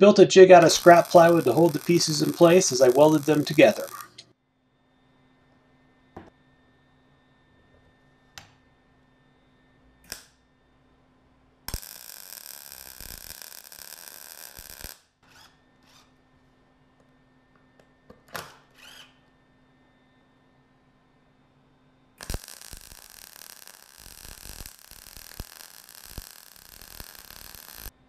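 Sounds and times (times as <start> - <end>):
electric welding arc: 0.4 - 4.2, 10.1 - 10.4, 11.7 - 15.0, 22.2 - 28.0.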